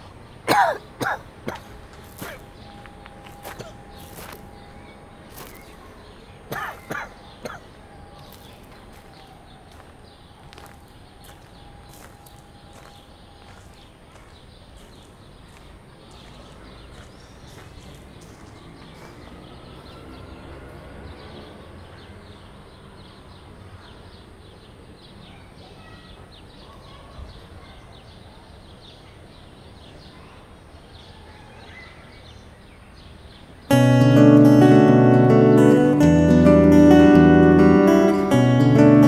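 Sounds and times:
footsteps crunching on gravel: 1.0s - 7.6s, 8.2s - 19.4s
faint bird chirps: 1.6s - 14.9s.

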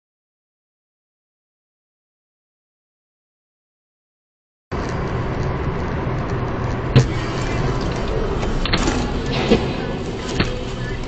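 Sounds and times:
car road and engine noise: 4.7s - 11.0s.

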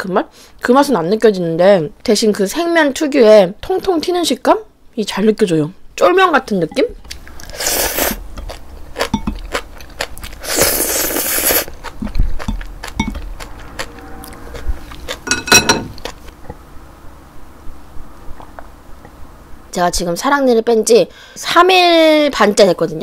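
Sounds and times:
chewing: 7.1s - 16.5s
person slurping noodles: 7.4s - 8.2s, 10.2s - 12.6s.

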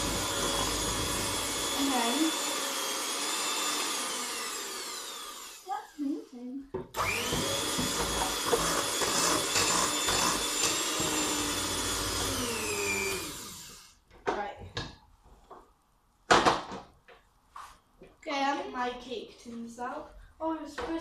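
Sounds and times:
electric mixer motor whining: 0.0s - 6.3s, 6.9s - 14.0s.

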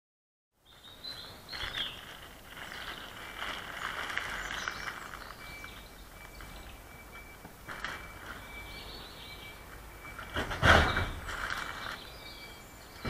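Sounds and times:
birds chirping: 0.6s - 13.0s.

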